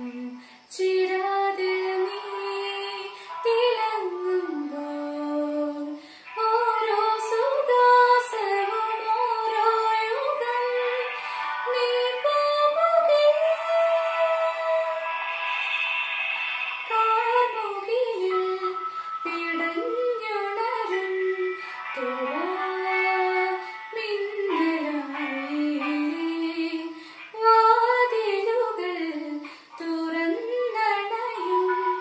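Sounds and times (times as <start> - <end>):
woman singing: 0.0 - 15.1, 16.9 - 32.0
singer's breaths: 0.4 - 0.7, 3.1 - 3.4, 6.0 - 6.4, 11.1 - 11.6, 21.5 - 22.0, 26.9 - 27.3, 29.4 - 29.8.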